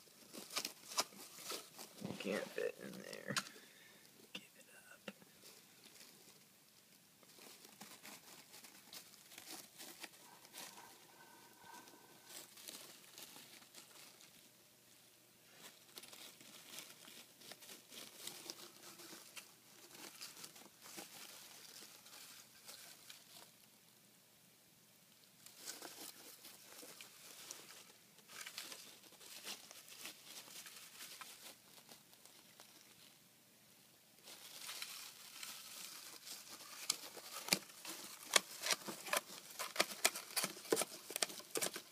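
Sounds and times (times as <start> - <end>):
rustling wood shavings: 0.0 - 4.0, 5.3 - 23.7, 25.2 - 33.2, 34.1 - 41.9.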